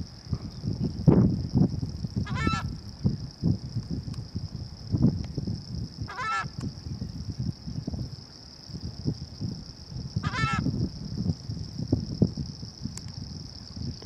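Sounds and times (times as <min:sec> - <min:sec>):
steady high hiss: 0:00.0 - 0:14.0
surf and wind rumble: 0:00.0 - 0:14.0
terns calling: 0:02.2 - 0:02.8, 0:06.0 - 0:06.6, 0:10.2 - 0:10.7.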